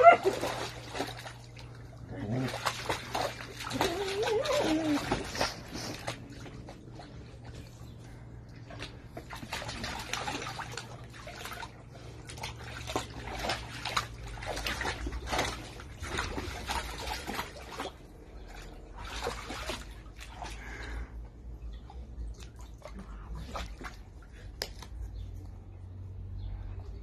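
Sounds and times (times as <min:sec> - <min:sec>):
dog splashing in water: 0:00.0 - 0:07.6, 0:08.5 - 0:21.0, 0:22.3 - 0:25.0.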